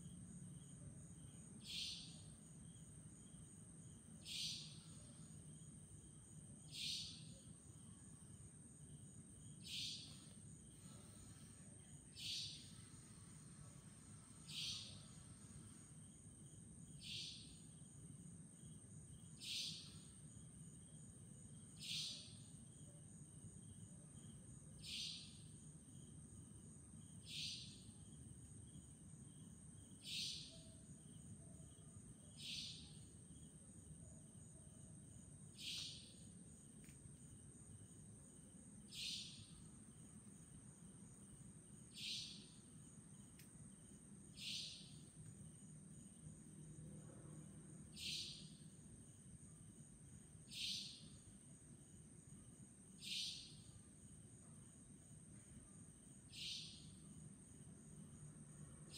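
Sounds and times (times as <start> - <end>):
nightjar calling: 1.6 - 2.2, 4.2 - 5.0, 6.7 - 7.3, 9.6 - 10.2, 12.2 - 12.9, 14.5 - 15.2, 17.0 - 17.6, 19.4 - 20.1, 21.8 - 22.4, 24.8 - 25.4, 27.2 - 27.9, 30.0 - 30.7, 32.4 - 33.0, 35.6 - 36.2, 38.9 - 39.5, 41.9 - 42.6, 44.4 - 45.0, 48.0 - 48.6, 50.5 - 51.1, 53.0 - 53.7, 56.3 - 57.0.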